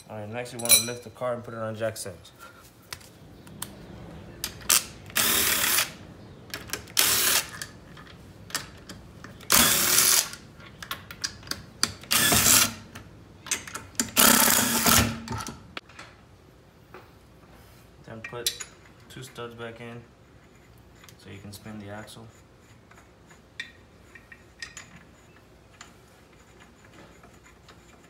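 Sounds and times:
cordless power driver spinning: 9.4 - 10.3.

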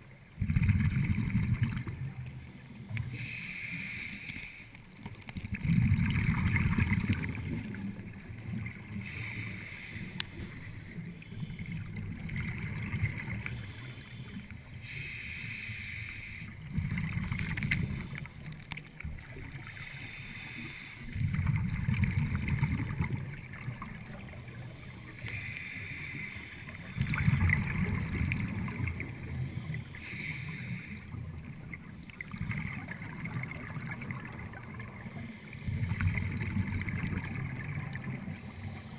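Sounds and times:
exhaled bubbles rumbling: 0.0 - 3.1, 5.0 - 9.2, 10.4 - 14.6, 16.5 - 19.8, 21.1 - 25.3, 26.6 - 30.2, 31.1 - 38.9
regulator inhale hiss: 3.0 - 4.8, 8.9 - 11.6, 13.5 - 16.6, 19.6 - 21.2, 24.4 - 26.9, 29.2 - 31.2, 35.0 - 36.1, 38.2 - 38.9.

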